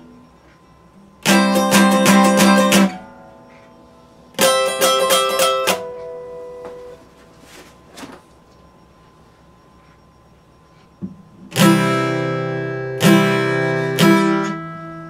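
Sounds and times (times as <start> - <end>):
acoustic guitar strummed: 1.2 - 7.5, 11.4 - 15.0.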